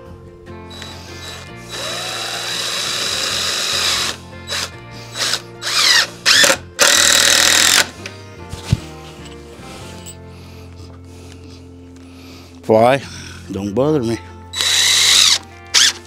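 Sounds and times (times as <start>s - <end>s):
cordless drill driving screw: 0.7s - 7.9s, 14.6s - 16.0s.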